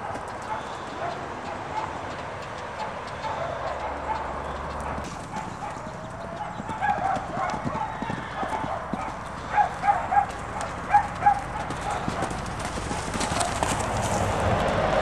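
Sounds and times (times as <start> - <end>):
horses cantering on sand: 0.0 - 15.0.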